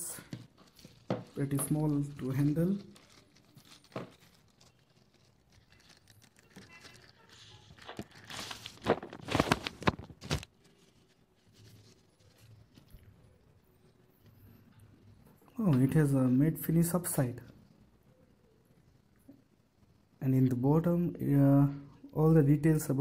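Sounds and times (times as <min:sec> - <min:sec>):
plastic wrapping crinkling: 0:00.1 - 0:15.3.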